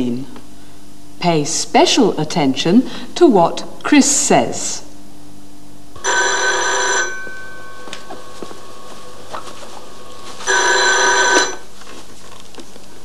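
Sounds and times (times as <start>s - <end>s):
desk telephone ringing: 6.0s - 11.7s.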